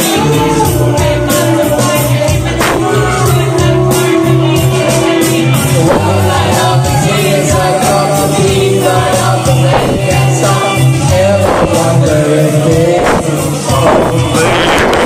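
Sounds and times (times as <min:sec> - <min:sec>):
backing track with steady beat: 0:00.0 - 0:15.0
people singing: 0:00.0 - 0:15.0.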